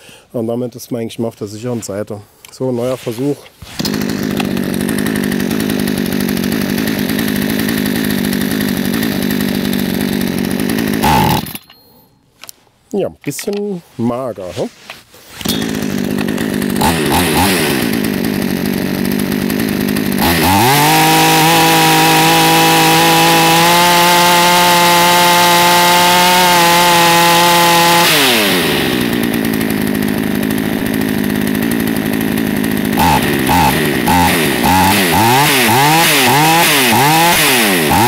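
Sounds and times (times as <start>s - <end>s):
chainsaw engine revving: 3.6s - 11.6s, 15.4s - 38.0s.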